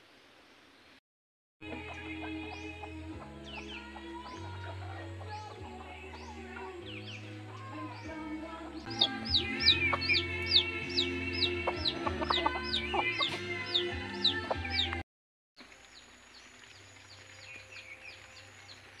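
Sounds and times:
background music: 0:01.6 - 0:15.0
chickens clucking: 0:01.6 - 0:15.0.

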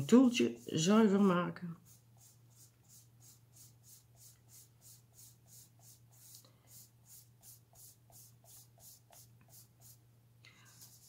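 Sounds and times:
sponge applicator rubbing on paper: 0:00.0 - 0:10.0, 0:10.7 - 0:11.0.

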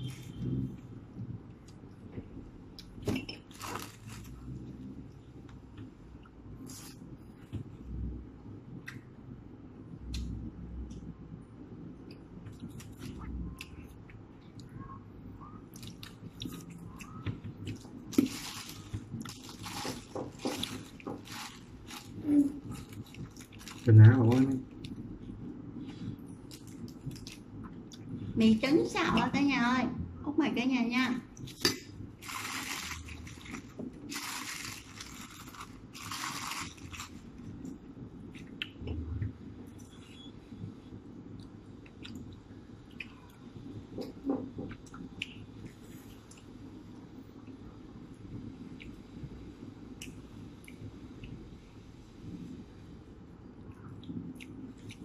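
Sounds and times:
plastic bags rustling: 0:03.4 - 0:04.6, 0:18.0 - 0:24.6, 0:32.2 - 0:37.4.

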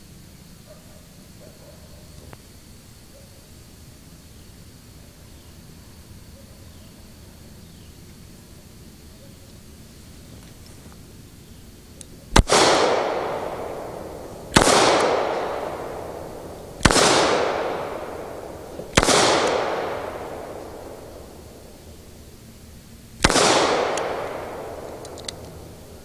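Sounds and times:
revolver shots with echo: 0:12.4 - 0:21.7, 0:23.2 - 0:25.7.

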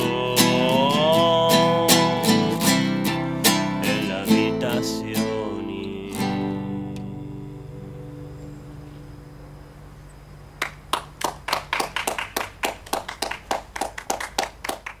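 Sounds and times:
acoustic guitar chord ringing: 0:00.0 - 0:10.0
hand clapping: 0:10.6 - 0:15.0.

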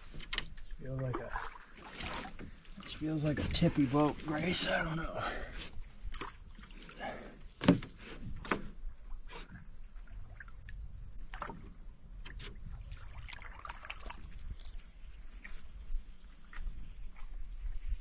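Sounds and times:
small water splashes and drips: 0:00.3 - 0:03.2, 0:06.0 - 0:07.3, 0:09.0 - 0:18.0.

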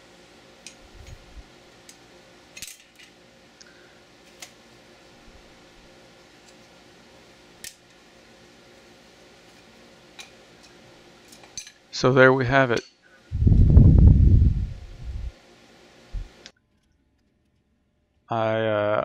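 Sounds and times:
steady low hum: 0:00.0 - 0:19.0
metal parts clicking and clinking: 0:02.6 - 0:03.1.

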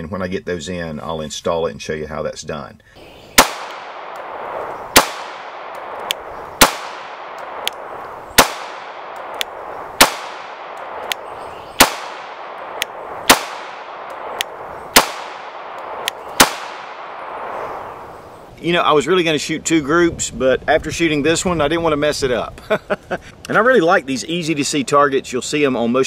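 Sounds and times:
pistol shots with echo: 0:03.4 - 0:18.0
sharp click: 0:05.6 - 0:06.2, 0:07.3 - 0:07.8, 0:09.1 - 0:09.6, 0:12.6 - 0:13.0, 0:14.0 - 0:14.6.

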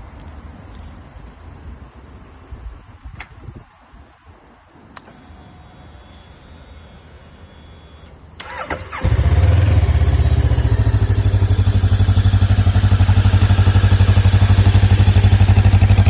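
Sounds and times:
starter motor whine: 0:05.0 - 0:11.0
motorcycle engine idling: 0:08.4 - 0:16.0.

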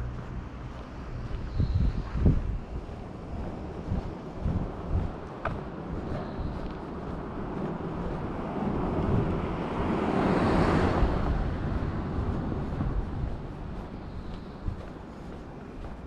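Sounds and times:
wind rumble on microphone: 0:00.0 - 0:16.0
car passing by: 0:05.6 - 0:15.3.

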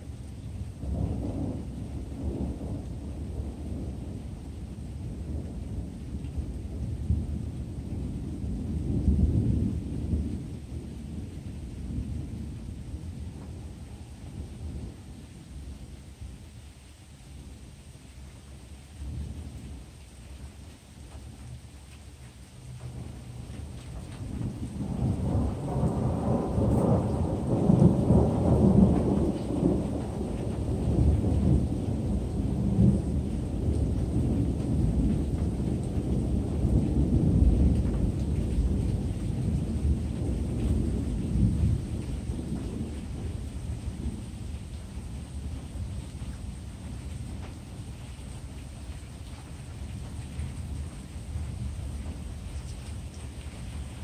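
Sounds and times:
thunder rumbling: 0:00.0 - 0:15.9, 0:22.6 - 0:54.0.

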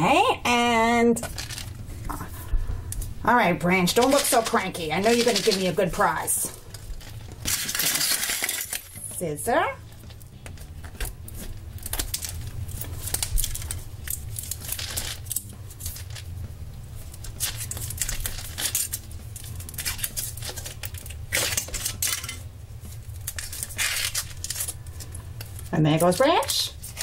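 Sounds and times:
foil crinkling and rustling: 0:01.2 - 0:02.6, 0:03.9 - 0:09.2, 0:09.8 - 0:27.0
scissors snipping foil: 0:03.9 - 0:09.1, 0:10.0 - 0:16.3, 0:17.0 - 0:27.0.

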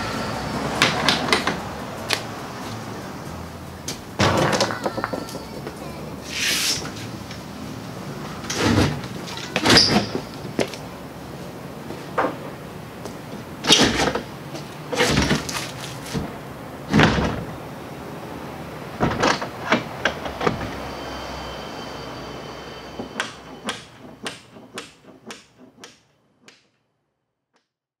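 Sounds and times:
wooden door thudding shut: 0:04.2 - 0:05.0, 0:16.9 - 0:17.6.

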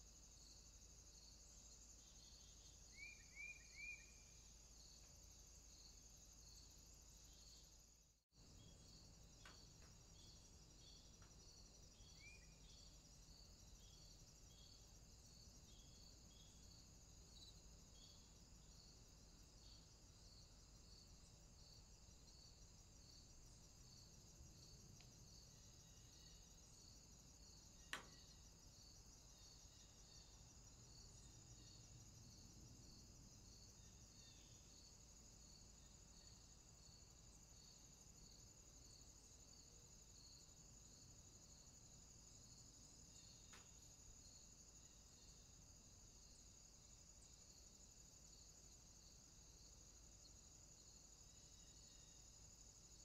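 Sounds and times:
crickets chirping: 0:00.0 - 0:53.0.

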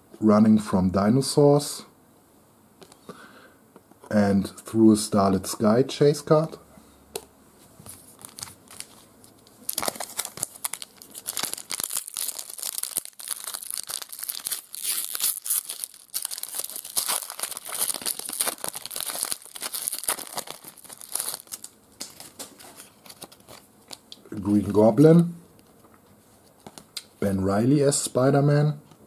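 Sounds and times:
foil wrapper tearing and crinkling: 0:08.1 - 0:24.1.

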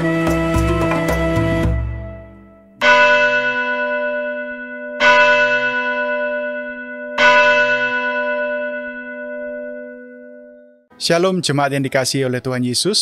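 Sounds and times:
deep bell ringing: 0:02.1 - 0:11.4.

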